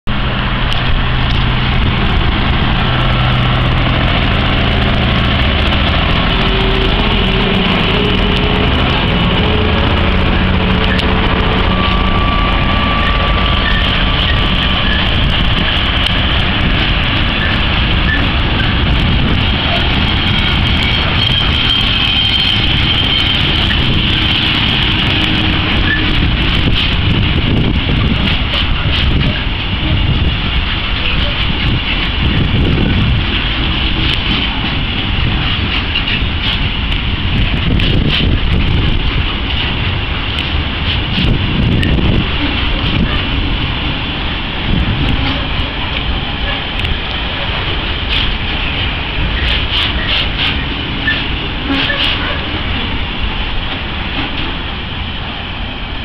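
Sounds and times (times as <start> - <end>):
wagons rumbling and clattering on rails: 0.0 - 56.0
diesel locomotive engine thrashing: 0.1 - 56.0
thin wheel squeals: 20.1 - 24.2.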